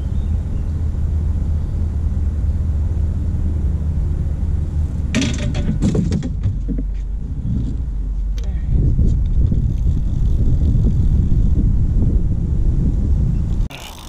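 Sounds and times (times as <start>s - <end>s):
steady low rumble: 0.0s - 13.7s
knocks and clatter on boat: 5.1s - 9.7s.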